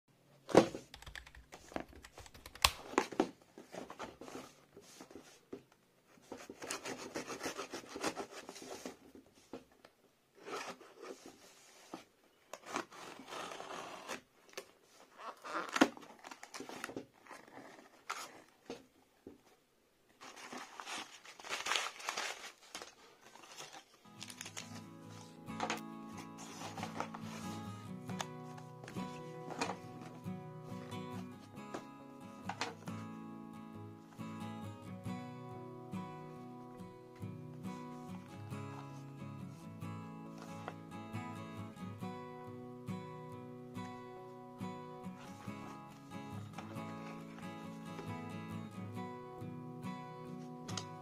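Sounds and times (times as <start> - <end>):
cardboard rubbing: 6.2 - 9.1, 26.1 - 30.2
plastic wrap tearing and crinkling: 20.3 - 25.1.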